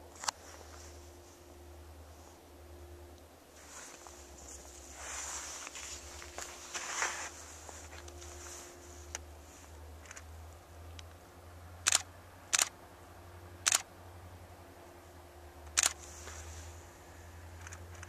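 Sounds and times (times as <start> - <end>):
low steady hum: 0.0 - 18.0
camera shutter clicks: 11.9 - 12.7, 13.6 - 13.9, 15.8 - 16.0.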